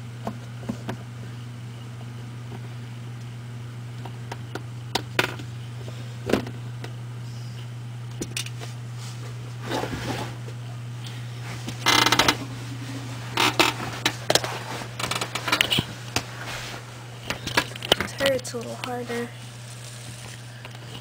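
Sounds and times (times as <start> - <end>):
steady low hum: 0.0 - 21.0
short rustle: 11.4 - 17.1.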